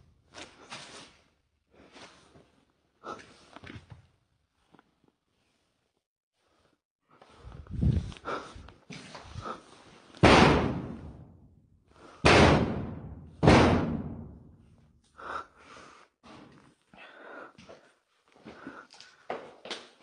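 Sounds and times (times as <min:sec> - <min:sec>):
loud bangs echoing: 0:10.2 - 0:11.4, 0:12.2 - 0:14.6.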